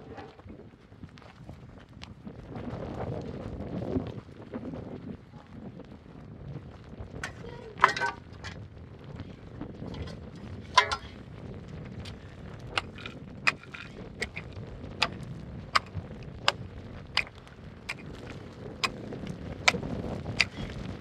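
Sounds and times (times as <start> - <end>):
digging tool striking stony soil: 10.7 - 11.2, 12.8 - 16.6, 17.9 - 18.2, 19.6 - 20.8.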